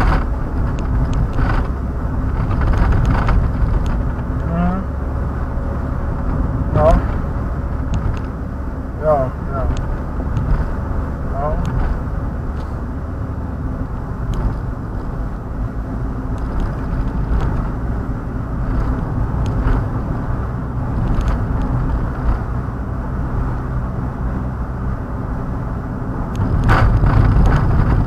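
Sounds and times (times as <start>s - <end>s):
engine hum: 0.0s - 28.0s.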